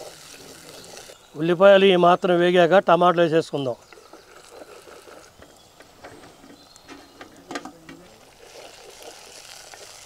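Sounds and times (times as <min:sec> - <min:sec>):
frying sizzle: 0:00.0 - 0:02.8, 0:03.8 - 0:10.0
wooden spatula stirring in pot: 0:03.9 - 0:10.0.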